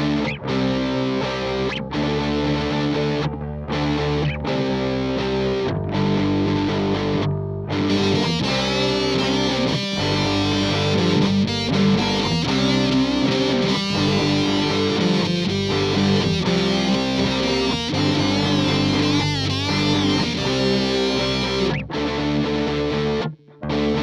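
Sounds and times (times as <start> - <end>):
distorted electric guitar music: 0.0 - 24.0.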